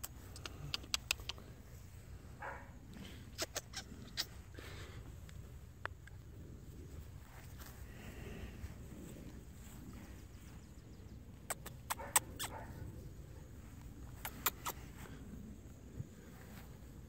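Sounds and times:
sharp clicks: 0:00.0 - 0:01.5
steady low rumble: 0:00.0 - 0:17.0.

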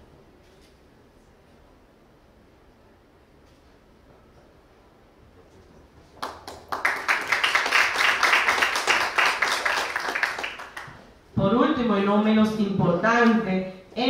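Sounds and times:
audience clapping: 0:06.1 - 0:11.1.

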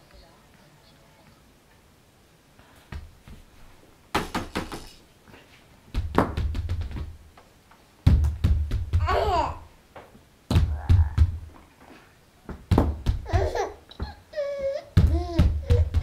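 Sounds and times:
rapid knocking and thumps: 0:05.9 - 0:07.2, 0:08.0 - 0:09.5, 0:10.5 - 0:11.6, 0:12.5 - 0:14.2, 0:15.0 - 0:16.0.

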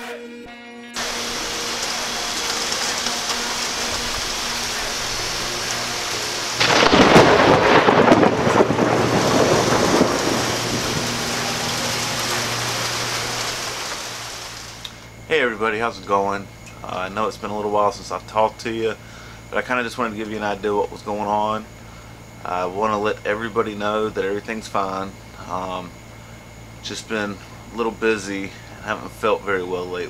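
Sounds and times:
thunderclap rumbling: 0:01.0 - 0:14.8
heavy rain: 0:01.0 - 0:15.3.

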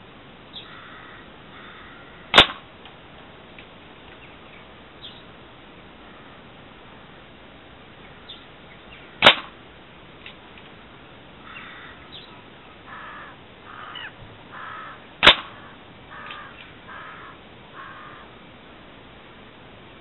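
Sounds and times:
crow cawing: 0:00.6 - 0:02.3, 0:11.4 - 0:12.2, 0:12.9 - 0:18.4
air gun shots: 0:02.3 - 0:02.7, 0:09.2 - 0:09.6, 0:15.2 - 0:15.6.

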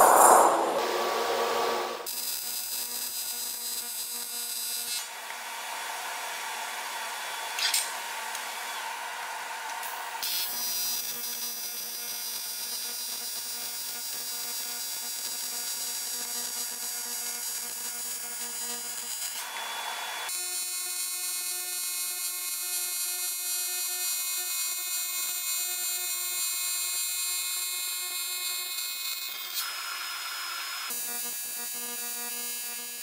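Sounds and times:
welding arc buzzing: 0:10.3 - 0:19.3.

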